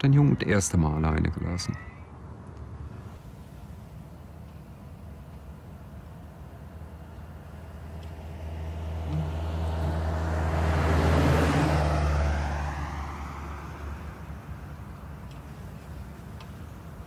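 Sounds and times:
car passing by: 7.6 - 17.0.

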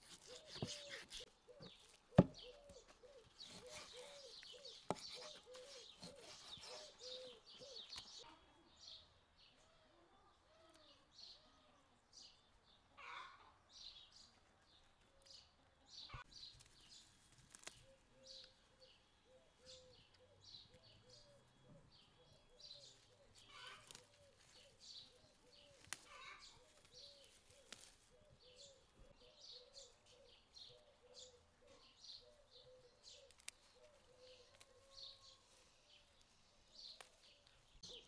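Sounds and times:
small birds chirping: 0.0 - 38.0
dove cooing: 0.2 - 7.9, 19.3 - 34.9.

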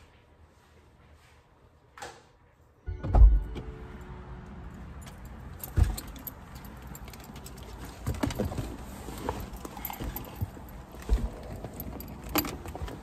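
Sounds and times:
keys jangling: 5.0 - 8.0, 9.4 - 13.0
handbag being handled: 5.8 - 13.0.

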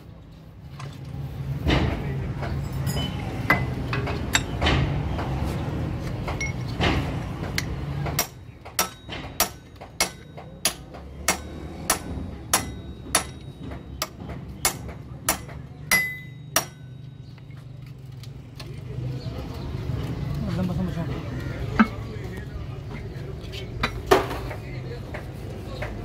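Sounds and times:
workshop clatter: 0.0 - 18.8, 21.0 - 26.0
hammer striking metal: 2.8 - 5.0, 6.3 - 17.2.

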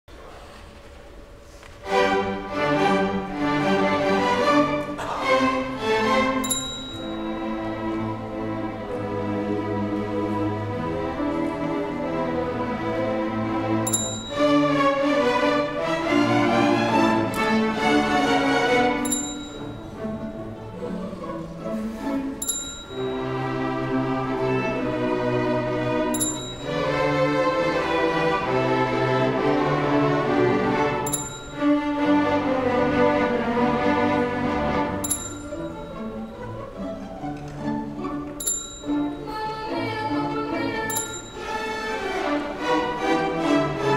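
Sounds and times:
string orchestra bowed notes: 1.6 - 43.9
high bright ding: 6.4 - 7.5, 13.8 - 14.8, 19.0 - 20.0, 22.4 - 23.2, 26.1 - 27.0, 31.0 - 31.8, 35.0 - 36.0, 38.4 - 39.3, 40.8 - 41.6.

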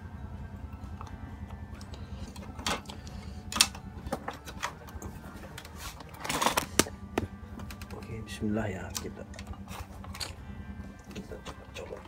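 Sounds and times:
steady low hum: 0.0 - 12.0
handling clicks and knocks: 1.8 - 8.2.

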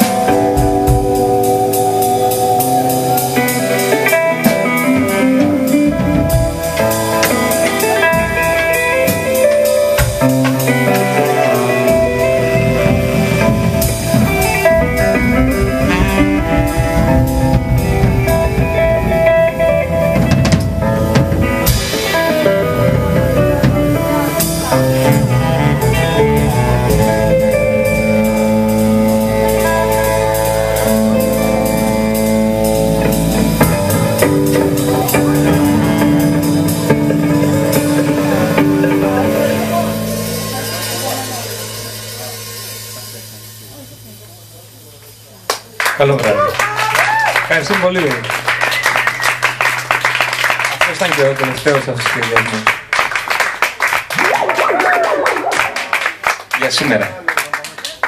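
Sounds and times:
saxophone: 0.0 - 20.2, 20.8 - 42.0
drum kit: 0.0 - 57.1
electric guitar: 0.0 - 58.0.

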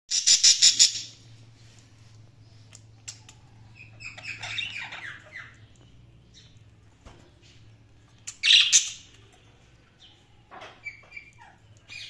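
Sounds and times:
budgerigars calling: 3.8 - 5.6.

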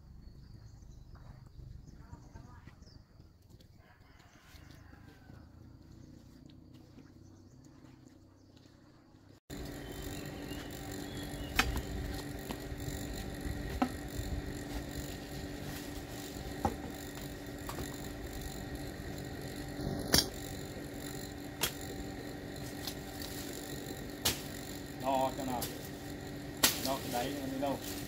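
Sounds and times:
steady hum: 9.5 - 28.0.

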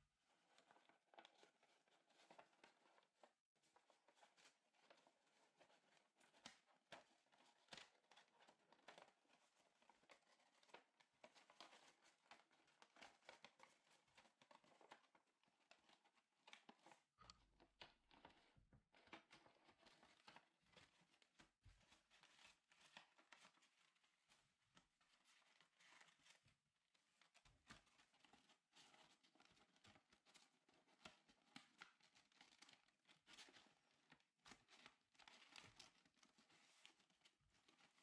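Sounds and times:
paper rustling and crinkling: 18.2 - 38.0.

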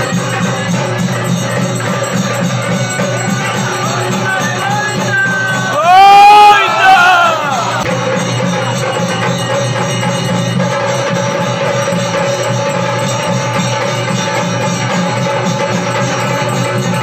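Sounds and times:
percussion: 0.0 - 17.0.

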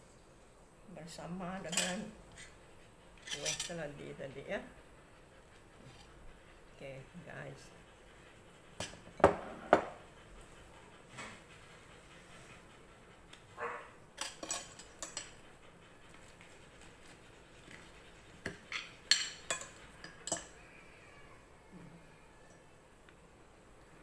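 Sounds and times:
cutlery clinking on ceramic plate: 14.2 - 15.3, 18.7 - 20.6.

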